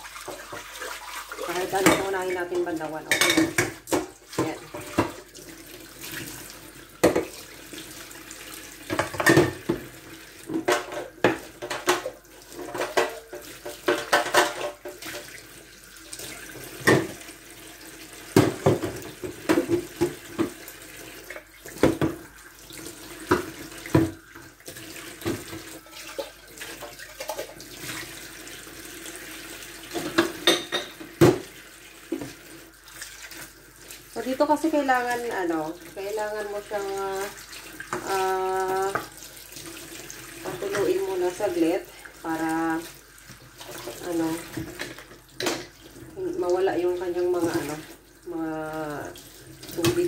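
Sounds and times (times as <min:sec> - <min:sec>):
pans and plates clattering: 0:03.1 - 0:05.2, 0:08.9 - 0:09.9, 0:10.5 - 0:15.3, 0:29.9 - 0:31.4
tap running into sink: 0:16.6 - 0:17.2, 0:18.3 - 0:20.6, 0:21.7 - 0:22.2, 0:23.2 - 0:24.2.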